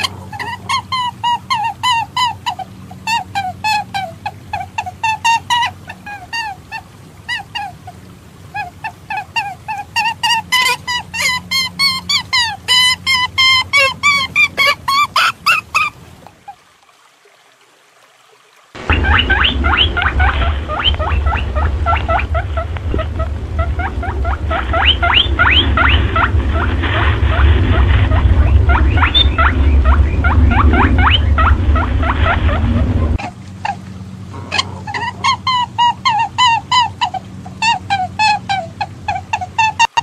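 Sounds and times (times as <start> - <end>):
quieter repeated animal call: 0.0 - 16.0, 18.8 - 40.0
short squealing calls: 8.5 - 16.0, 18.8 - 33.8
heavy low rumble: 18.8 - 36.8.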